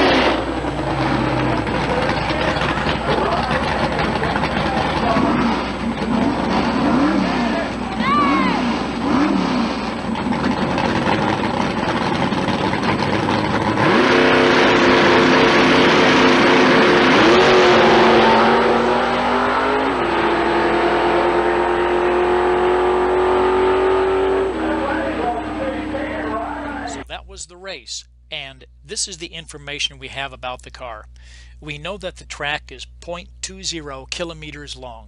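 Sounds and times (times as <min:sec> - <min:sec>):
drag racing car engine: 0:00.0 - 0:27.1.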